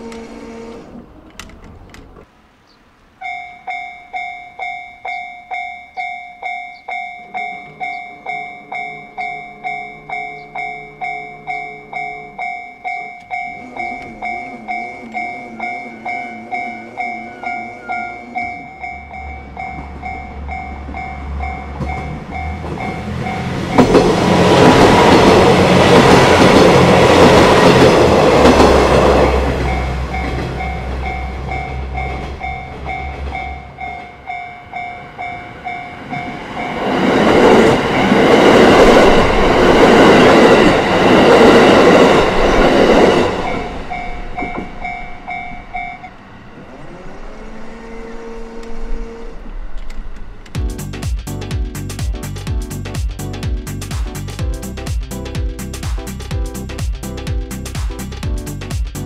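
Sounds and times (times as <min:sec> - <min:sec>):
trains rushing past: 0:00.0 - 0:59.0
level crossing bell dinging: 0:03.2 - 0:23.8.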